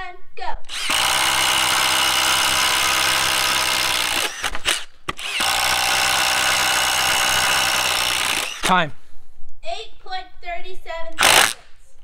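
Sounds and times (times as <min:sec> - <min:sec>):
impact driver boring through wood: 0:00.7 - 0:08.8, 0:11.2 - 0:11.6.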